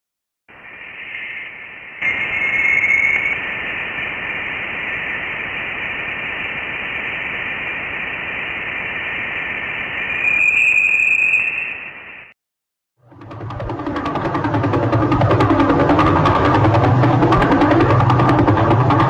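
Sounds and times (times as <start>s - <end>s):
faint whistling tone: 0.5s - 3.4s, 9.9s - 12.3s
steady radio-like hiss: 0.5s - 10.4s.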